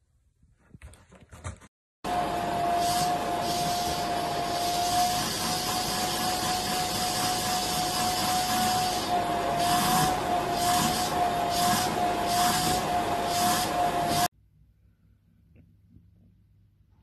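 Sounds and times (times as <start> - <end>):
vacuum cleaner whining: 2.0 - 14.3.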